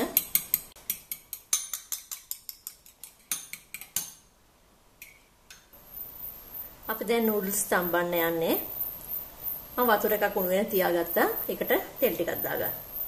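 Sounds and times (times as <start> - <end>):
fork beating eggs in ceramic bowl: 0.1 - 4.2.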